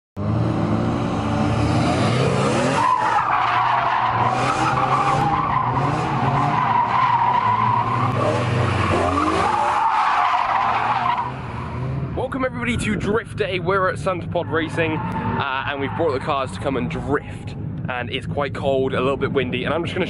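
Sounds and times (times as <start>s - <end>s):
car engine revving: 0.2s - 20.0s
tyres squealing: 2.8s - 11.4s.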